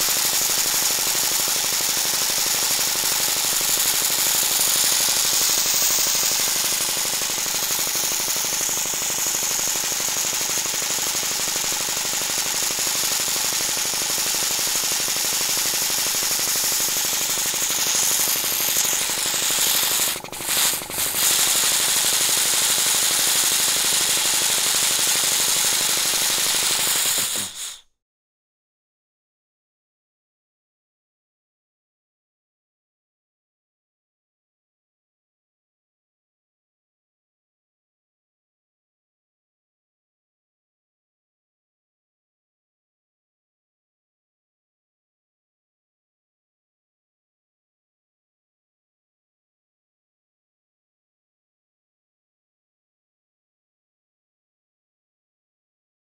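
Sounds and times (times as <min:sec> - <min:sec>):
air compressor running: 0:00.0 - 0:27.9.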